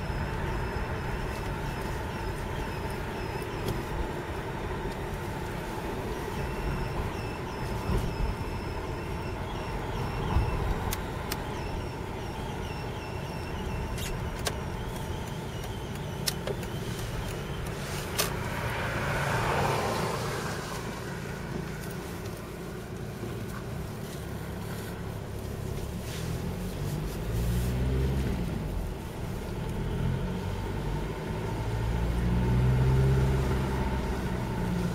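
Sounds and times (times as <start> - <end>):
diesel car engine: 0.0 - 34.9
whistling squeak from exhaust: 6.3 - 18.3
sharp clicks: 13.9 - 18.4.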